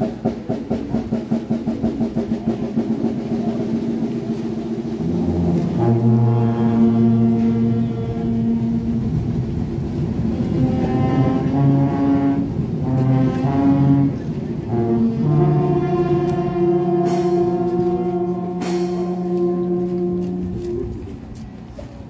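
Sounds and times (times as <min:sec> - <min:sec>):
brass band playing a slow march: 0:00.0 - 0:21.9
cymbal crashes: 0:18.5 - 0:19.3.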